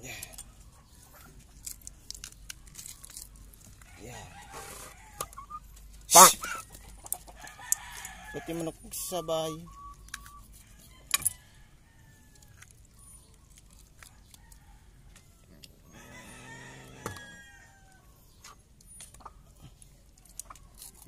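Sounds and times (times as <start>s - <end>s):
rooster crowing: 4.0s - 5.4s, 7.4s - 8.7s, 14.4s - 18.1s.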